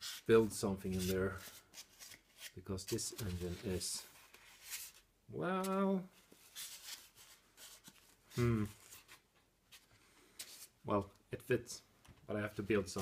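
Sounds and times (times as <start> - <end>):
man humming wordless filler: 8.3 - 8.8.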